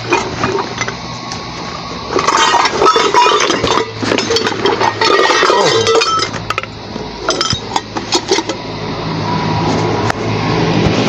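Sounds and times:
low hum: 0.0 - 11.0
hard objects clinking: 2.1 - 8.6.

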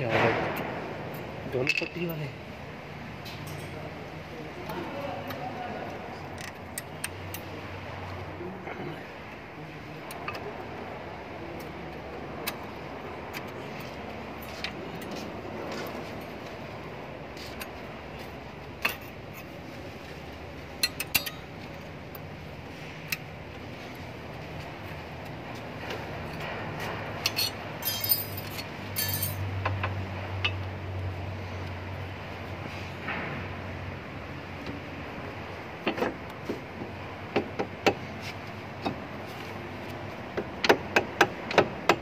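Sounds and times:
metal clinks of brake parts: 3.2 - 3.9, 18.8 - 19.5, 20.8 - 21.9, 27.2 - 29.8.

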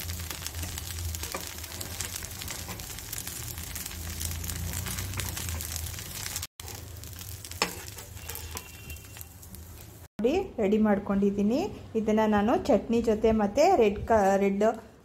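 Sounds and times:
dosa sizzling in a pan: 0.0 - 10.2.

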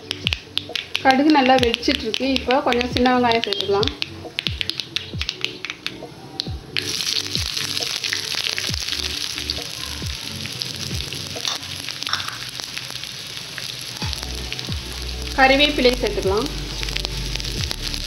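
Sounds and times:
mustard seeds crackling and popping: 0.0 - 18.0
shallots sizzling in hot oil: 6.8 - 18.0.

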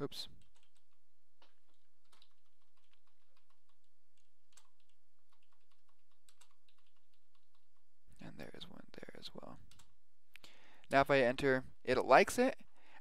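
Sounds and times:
computer keyboard keystrokes: 0.4 - 7.8, 9.7 - 10.0.

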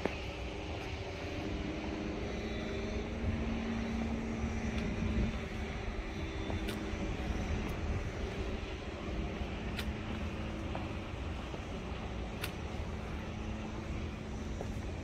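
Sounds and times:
droning tone: 0.0 - 15.0
engine rumble: 0.0 - 15.0.

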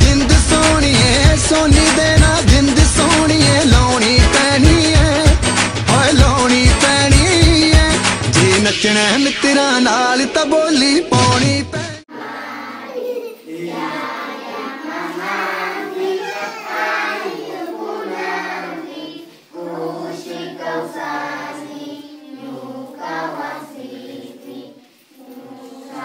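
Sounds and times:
children singing: 12.1 - 26.0.

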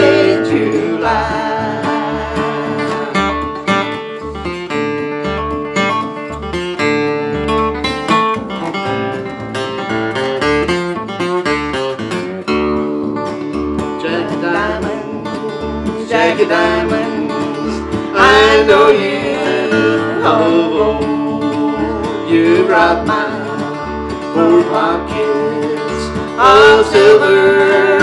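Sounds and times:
person singing: 0.0 - 4.2, 13.9 - 28.0
acoustic guitar: 0.0 - 28.0
plucked double bass: 0.0 - 28.0.

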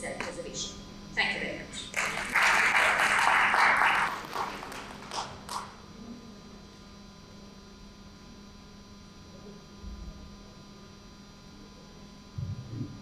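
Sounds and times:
steady electrical hum: 0.0 - 13.0
audience applause: 1.9 - 5.8.

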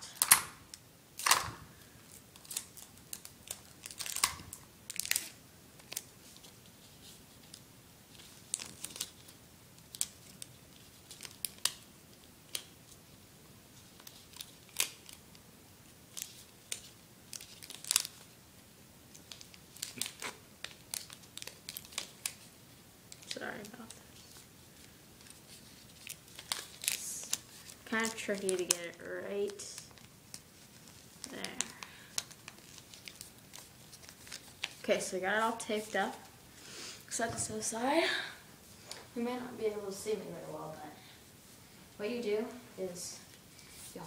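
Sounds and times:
paper crinkling: 2.1 - 12.8, 13.8 - 15.3, 16.1 - 18.4, 19.1 - 22.5, 23.1 - 35.0.

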